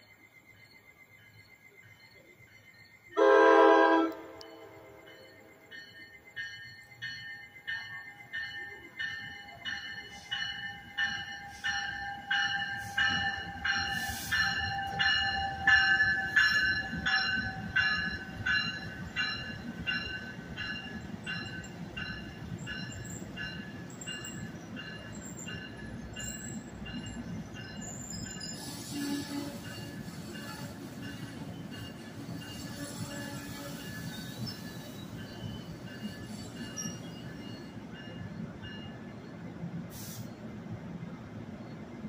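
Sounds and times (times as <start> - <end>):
train bell ringing: 0.0 - 40.4
train brakes squealing: 0.0 - 40.7
train cars rumbling: 3.1 - 42.0
air hiss: 13.9 - 14.7, 39.9 - 40.5.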